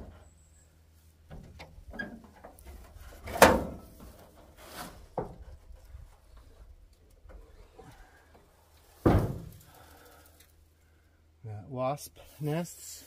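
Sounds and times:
truck hood knocks and clunks: 0:09.0 - 0:09.6.

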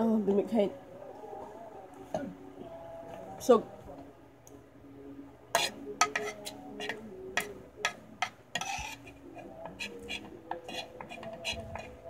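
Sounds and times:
metal spoon scraping ceramic plate: 0:05.6 - 0:12.0.

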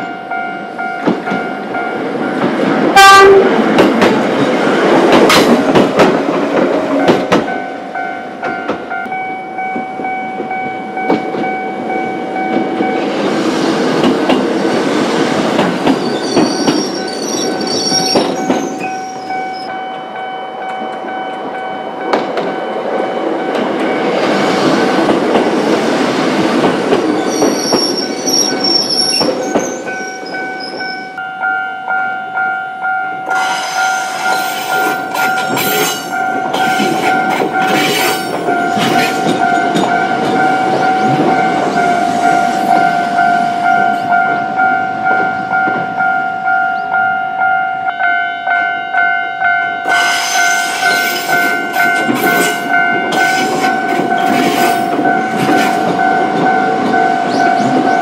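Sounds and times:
crossing alarm bells ringing: 0:00.0 - 0:13.7, 0:15.8 - 0:25.1, 0:27.0 - 0:58.0
train wheels clattering: 0:01.0 - 0:07.7, 0:12.4 - 0:19.4, 0:23.5 - 0:31.0, 0:33.4 - 0:43.0, 0:49.9 - 0:58.0
high wheel squeal: 0:15.9 - 0:19.7, 0:27.2 - 0:31.2.

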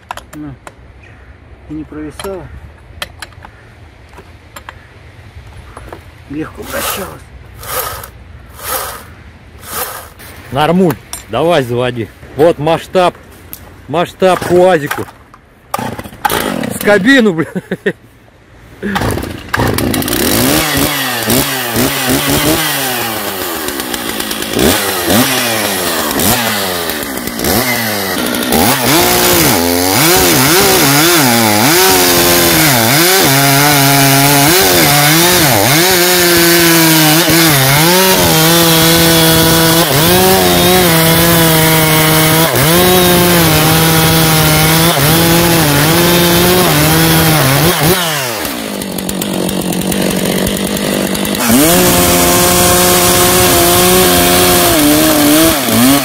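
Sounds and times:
chainsaw cutting through log: 0:06.5 - 0:10.2, 0:15.8 - 0:17.2, 0:18.8 - 0:56.0.

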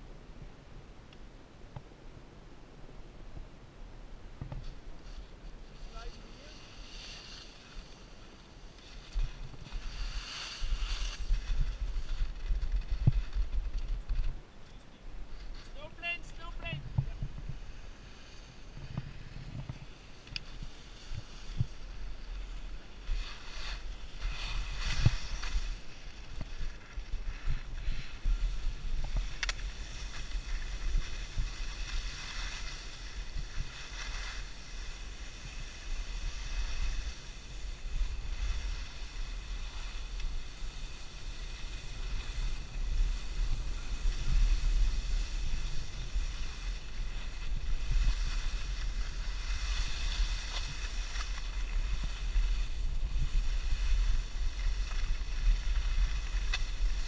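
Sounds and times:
skis scraping on snow: 0:04.4 - 0:14.4, 0:15.2 - 0:57.0
wind buffeting microphone: 0:16.8 - 0:18.0.

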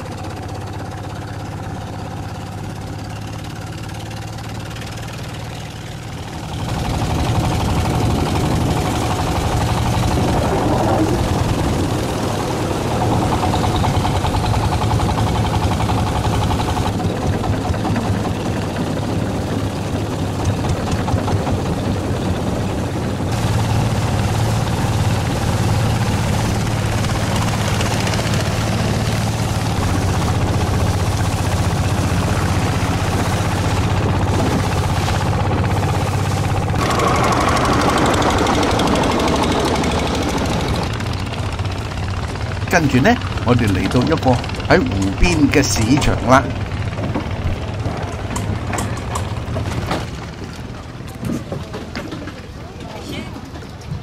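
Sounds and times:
motorboat engine humming: 0:00.0 - 0:54.0.

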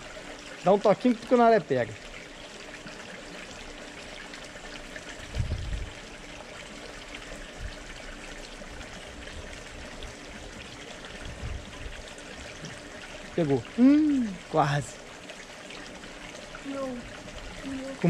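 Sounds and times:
water pouring into pond: 0:00.0 - 0:18.0
dull low thumps: 0:05.3 - 0:05.9.

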